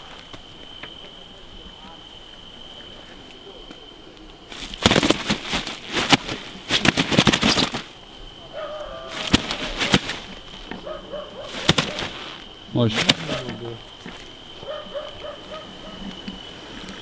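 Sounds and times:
fish thrashing with wet slaps: 0:09.2 - 0:10.3, 0:11.5 - 0:12.2.

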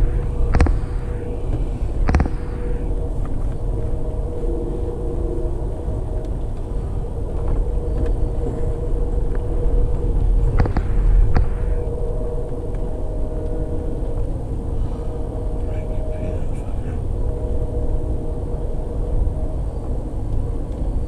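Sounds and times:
train rumble from inside: 0:00.0 - 0:21.0
sharp clicks: 0:02.1 - 0:02.4, 0:10.5 - 0:11.6.

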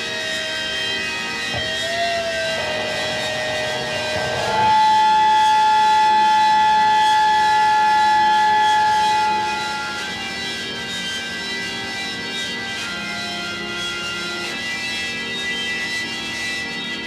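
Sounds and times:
sustained wavering lead note: 0:01.4 - 0:10.9.

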